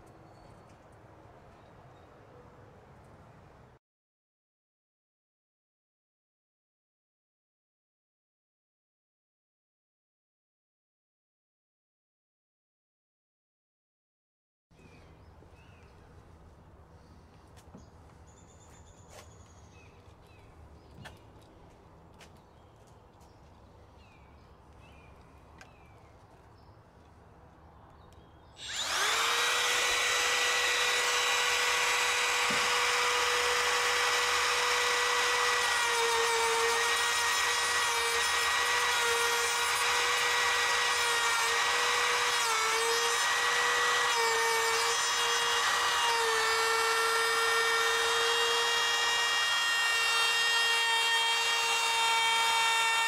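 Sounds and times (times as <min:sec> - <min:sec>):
router whining: 0:28.6 - 0:53.0.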